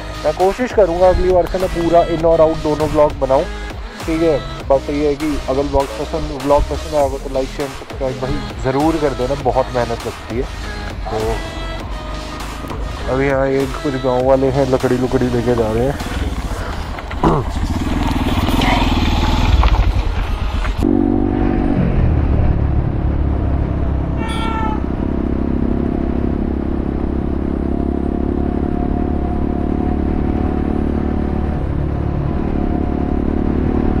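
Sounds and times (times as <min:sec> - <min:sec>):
motorcycle engine running: 0:00.0 - 0:34.0
brief high chirp: 0:24.2 - 0:24.8.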